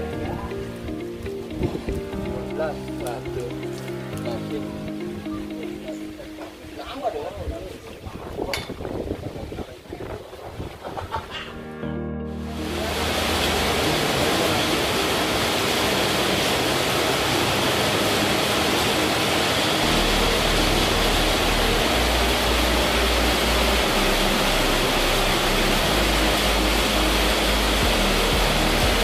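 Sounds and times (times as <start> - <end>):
heavy rain on pond water: 0.0 - 4.9, 12.3 - 29.0
low bass background music: 0.0 - 7.4, 11.6 - 29.0.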